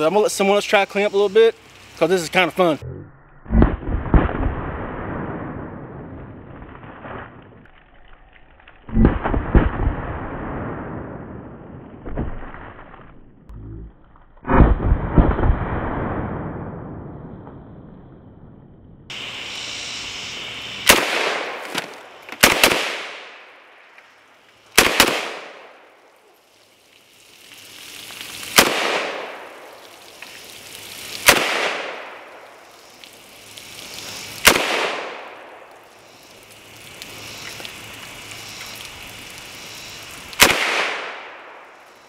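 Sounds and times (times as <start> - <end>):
steady high hiss: 0.0 - 2.8, 19.1 - 42.0
rifle shots with echo: 20.9 - 21.6, 22.4 - 23.5, 24.8 - 25.8, 28.6 - 29.5, 31.2 - 32.2, 34.4 - 35.6, 40.4 - 41.6.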